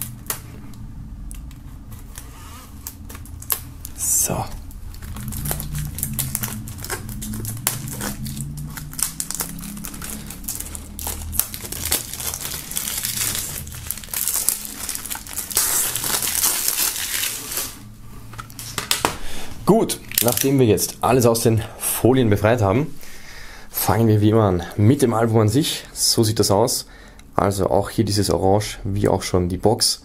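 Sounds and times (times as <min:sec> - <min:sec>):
plastic film crinkling: 0:00.0 - 0:21.4.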